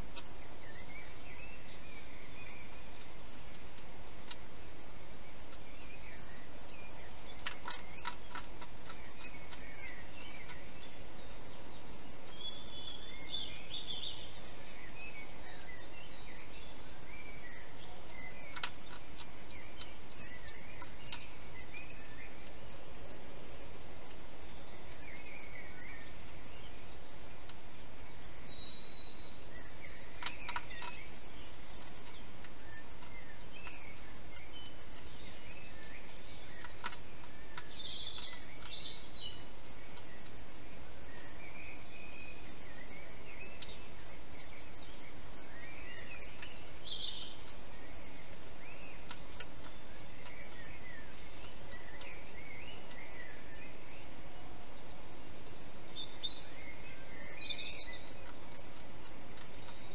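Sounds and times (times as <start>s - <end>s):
faint birds chirping: 0.0s - 59.9s
steady hiss: 0.0s - 59.9s
sharp clicks: 7.4s - 10.6s, 18.1s - 21.4s, 30.1s - 31.2s, 35.8s - 39.0s, 48.5s - 50.7s, 57.5s - 59.9s.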